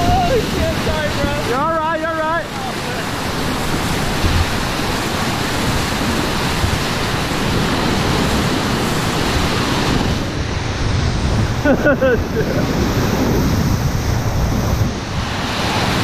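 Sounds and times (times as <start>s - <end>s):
whitewater rapids rushing: 0.0s - 16.0s
water thumping against boat: 3.0s - 10.2s.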